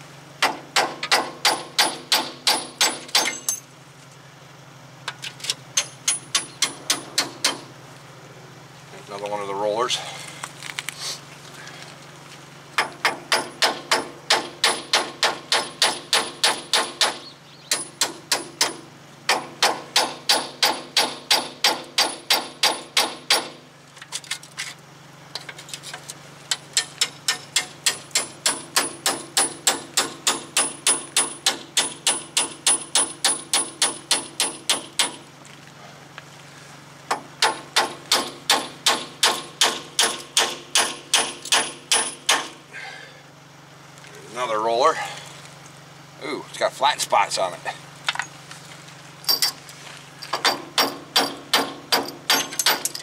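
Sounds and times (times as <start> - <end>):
hammer striking steel punch: 0.4 - 3.6, 5.8 - 7.7, 12.8 - 23.6, 26.8 - 35.2, 37.1 - 42.6, 50.4 - 53.0.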